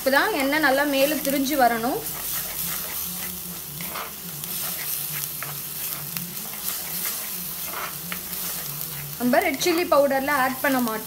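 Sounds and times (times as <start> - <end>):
paste sizzling in hot oil: 0.0 - 11.0
spoon scraping pot: 2.0 - 9.9.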